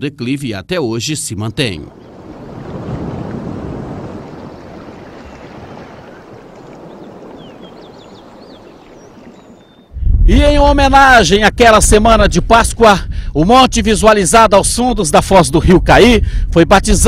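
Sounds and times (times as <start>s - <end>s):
wind: 0.0s - 17.0s
water rushing: 1.5s - 9.9s.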